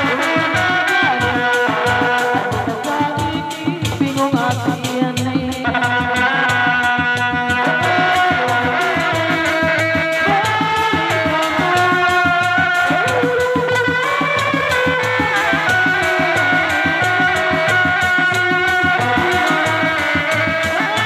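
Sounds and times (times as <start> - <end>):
hand drums beating fast rhythm: 0.0 - 21.0
sustained pitched melody: 7.3 - 21.0.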